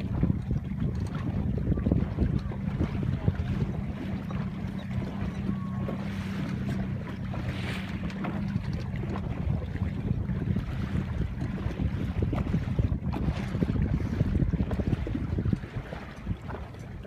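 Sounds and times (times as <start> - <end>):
choppy sea water: 0.0 - 17.0
low steady hum: 0.0 - 17.0
wind buffeting microphone: 0.0 - 17.0.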